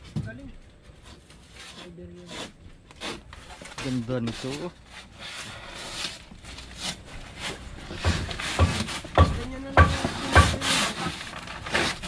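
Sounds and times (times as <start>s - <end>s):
scraping strokes on hard surface: 1.0s - 9.2s, 9.8s - 12.0s
dull knock: 8.0s - 10.6s.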